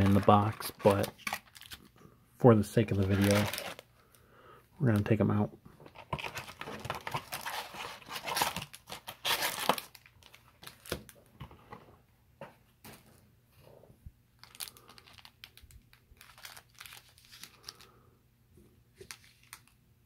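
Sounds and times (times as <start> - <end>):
foil wrappers crinkling: 0.0 - 1.9, 2.9 - 3.8, 6.1 - 11.2, 14.4 - 17.9.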